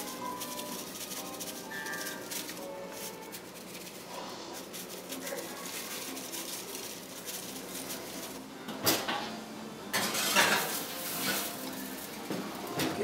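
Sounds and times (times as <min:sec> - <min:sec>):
glass dish scraping on oven rack: 0:09.9 - 0:13.0.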